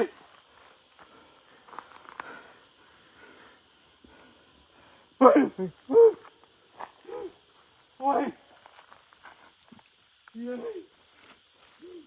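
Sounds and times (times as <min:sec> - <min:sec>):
crickets chirping: 0:00.0 - 0:12.0
person calling out loudly: 0:10.4 - 0:10.9.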